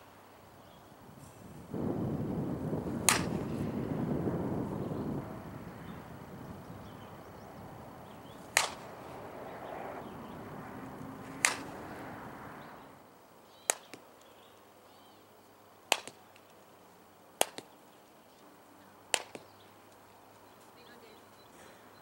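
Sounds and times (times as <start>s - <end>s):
bat striking softball: 2.8s - 3.8s, 8.4s - 9.1s, 11.2s - 12.0s, 19.1s - 19.4s.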